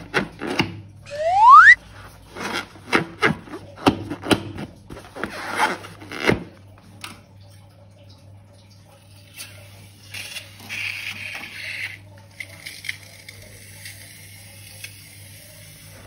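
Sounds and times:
balloon rubbing squeaks: 0:01.1 - 0:01.8.

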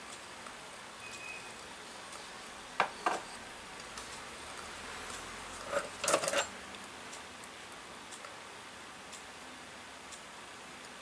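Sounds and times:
small cookware clicks and knocks: 0:05.6 - 0:06.5.

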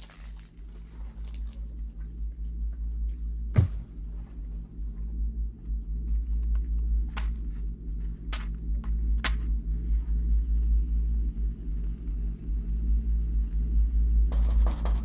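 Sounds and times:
faint hum: 0:00.0 - 0:15.0
fluttering low rumble: 0:00.6 - 0:15.0
sharp thud: 0:03.5 - 0:04.0.

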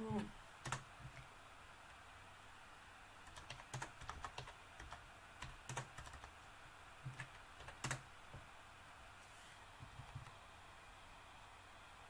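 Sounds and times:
computer keyboard typing: 0:00.1 - 0:01.2, 0:03.2 - 0:06.4, 0:07.0 - 0:08.1.

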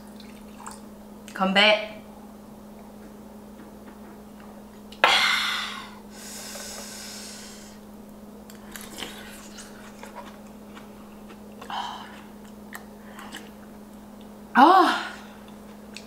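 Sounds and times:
chewing: 0:08.5 - 0:14.3, 0:15.4 - 0:16.0.

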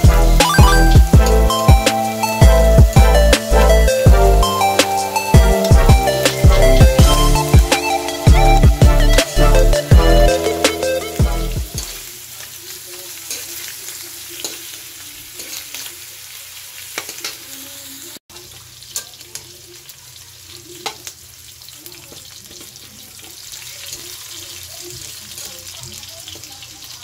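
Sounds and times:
background music: 0:00.0 - 0:12.0
meat sizzling in a wok: 0:01.1 - 0:09.8, 0:11.8 - 0:27.0.

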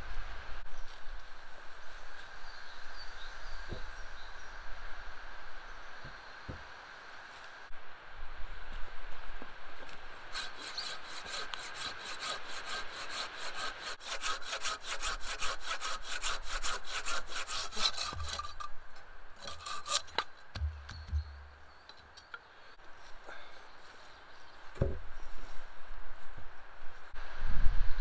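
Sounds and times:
hand saw cutting wood: 0:10.3 - 0:18.7, 0:19.4 - 0:20.7.

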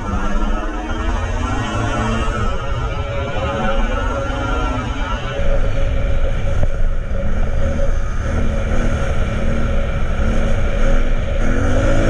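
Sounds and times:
atv engine running: 0:05.6 - 0:12.0.

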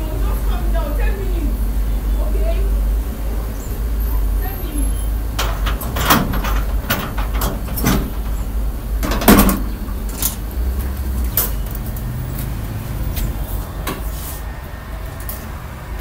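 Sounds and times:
steady low rumble: 0:00.0 - 0:13.7
door lock and handle clicking: 0:05.4 - 0:10.5.

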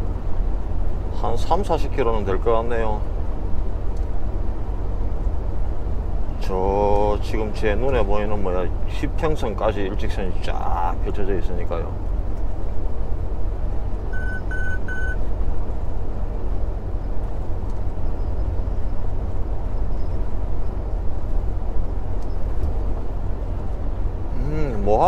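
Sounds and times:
road and wind noise: 0:00.0 - 0:25.0
truck engine drone: 0:00.0 - 0:25.0
short electronic beeps: 0:14.1 - 0:15.2.

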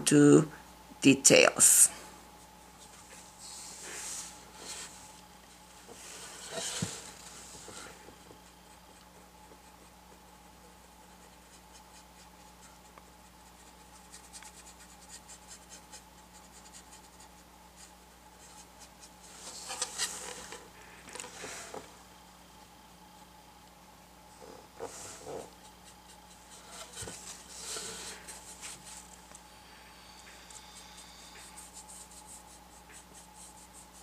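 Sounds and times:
board rubbing as handled: 0:05.9 - 0:08.0, 0:26.4 - 0:29.0
paintbrush scrubbing on board: 0:24.8 - 0:29.1, 0:30.5 - 0:34.0.

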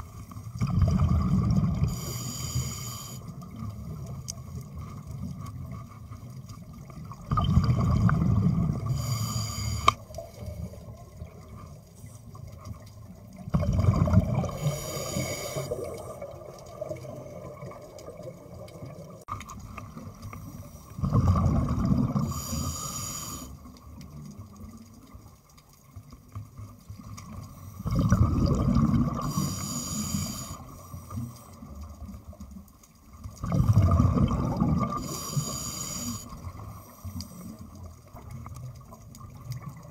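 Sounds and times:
bubbles fizzing: 0:00.0 - 0:02.1, 0:06.6 - 0:09.1, 0:12.8 - 0:20.3, 0:21.0 - 0:22.6, 0:26.2 - 0:39.9
diver breathing through regulator: 0:01.8 - 0:03.3, 0:08.8 - 0:10.0, 0:14.4 - 0:16.2, 0:22.2 - 0:23.7, 0:29.2 - 0:31.6, 0:34.9 - 0:37.6.

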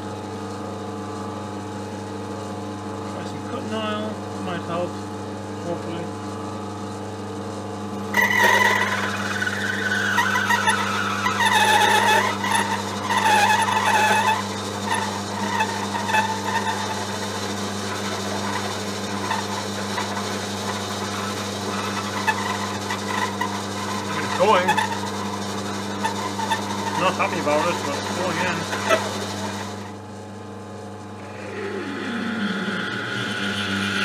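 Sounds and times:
lathe humming: 0:01.4 - 0:34.0
drill squealing into steel: 0:08.1 - 0:30.0, 0:31.5 - 0:34.0.

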